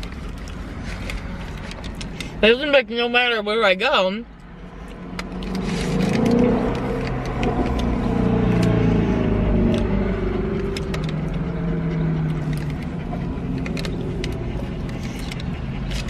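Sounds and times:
chewing clicks: 0:00.0 - 0:02.4, 0:04.4 - 0:08.8, 0:09.6 - 0:16.0
car engine idling: 0:04.3 - 0:16.0.

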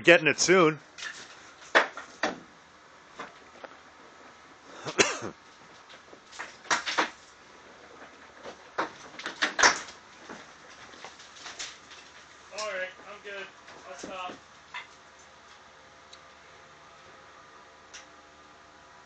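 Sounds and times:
bricks knocking and clattering: 0:06.4 - 0:07.2, 0:08.4 - 0:09.9.

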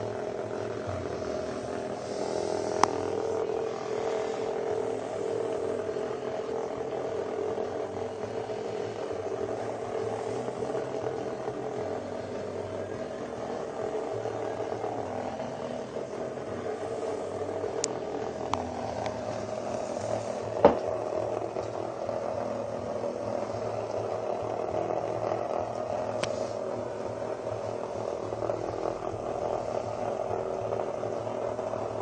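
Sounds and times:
vibrating toys buzzing: 0:00.0 - 0:32.0.

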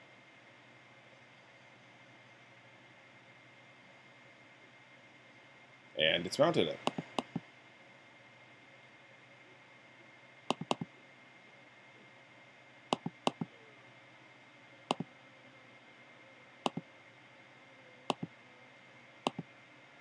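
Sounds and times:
faint steady high whine: 0:00.0 - 0:20.0
computer mouse button clicks: 0:06.9 - 0:07.4, 0:10.5 - 0:10.9, 0:13.0 - 0:13.5.

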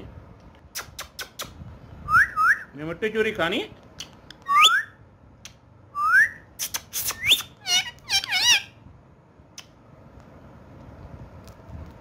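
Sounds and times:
parrot whistling: 0:02.1 - 0:02.7, 0:04.5 - 0:05.0, 0:06.0 - 0:06.5, 0:07.1 - 0:08.8
parrot squawky chatter: 0:06.6 - 0:08.8.

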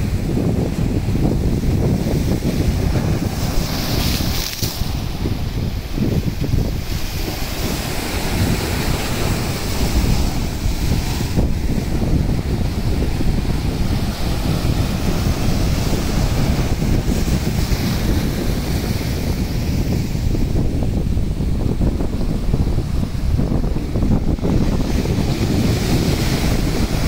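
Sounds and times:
wind buffeting microphone: 0:00.0 - 0:27.0
waves breaking over rocks: 0:00.2 - 0:20.7.

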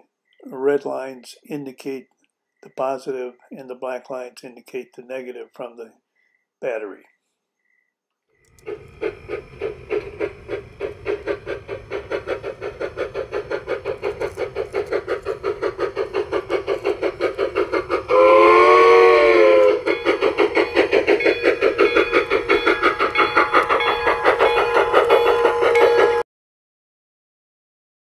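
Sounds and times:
model steam locomotive chuffing: 0:08.4 - 0:26.2
steam whistle: 0:17.9 - 0:20.6, 0:22.0 - 0:26.2.

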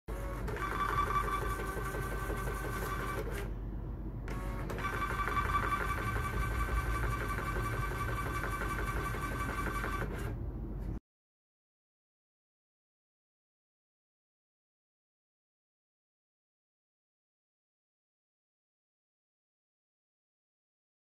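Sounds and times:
label printer motor whining: 0:00.1 - 0:03.5, 0:04.3 - 0:10.3.

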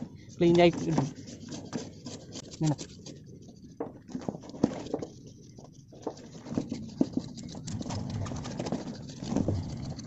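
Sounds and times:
knife scraping fish skin: 0:00.8 - 0:03.3.

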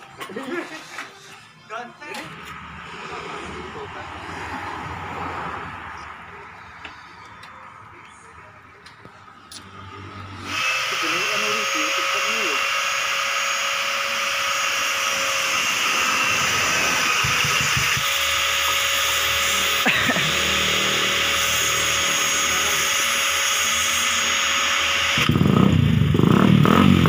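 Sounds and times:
motorcycle engine cranking whir: 0:08.9 - 0:27.0
motorcycle engine running: 0:16.0 - 0:18.9, 0:23.8 - 0:27.0.

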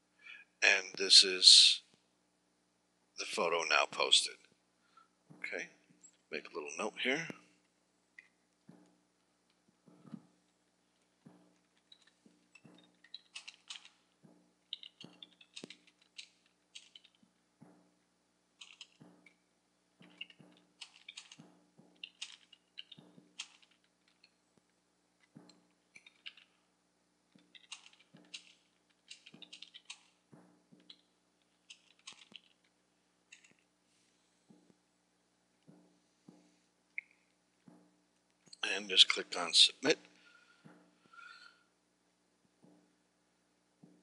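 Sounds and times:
typing on keyboard: 0:11.8 - 0:14.0, 0:14.7 - 0:17.2, 0:18.6 - 0:19.4, 0:20.0 - 0:24.3, 0:27.4 - 0:30.2, 0:31.6 - 0:32.6.

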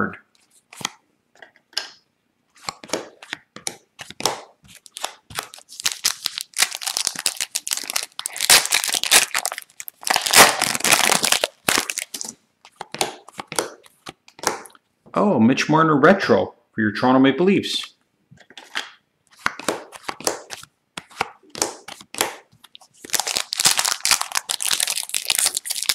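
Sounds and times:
foil wrapper tearing and crinkling: 0:04.7 - 0:12.3, 0:23.0 - 0:25.9
cards being flicked: 0:12.2 - 0:14.8, 0:18.5 - 0:22.5.

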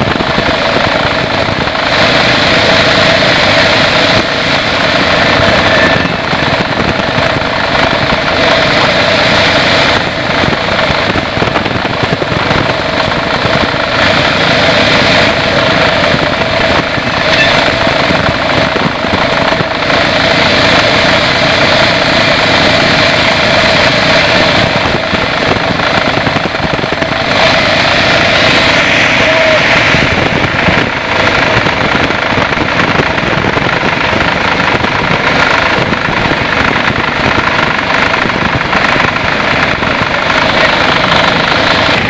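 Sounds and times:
constant hum: 0:00.0 - 0:42.0
sawmill mechanical drone: 0:00.0 - 0:42.0.

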